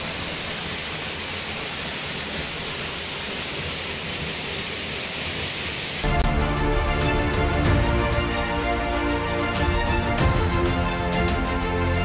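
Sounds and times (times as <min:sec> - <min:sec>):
waterfall rushing: 0:00.0 - 0:06.3.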